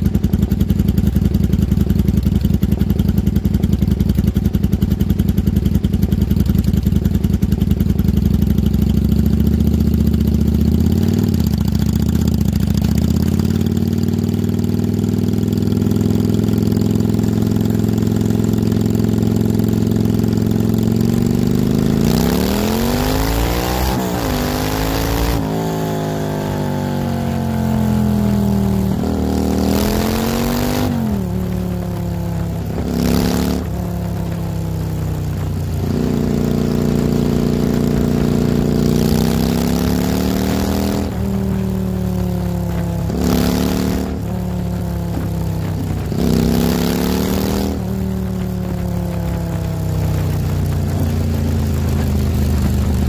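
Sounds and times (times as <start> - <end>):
motorcycle engine revving: 0.0 - 53.0.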